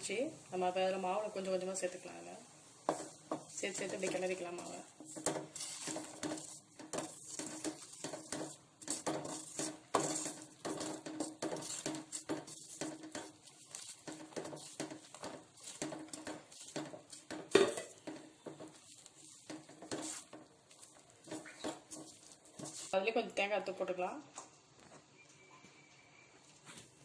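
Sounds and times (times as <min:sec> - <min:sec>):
wooden spatula scraping metal pan: 0:02.9 - 0:23.1.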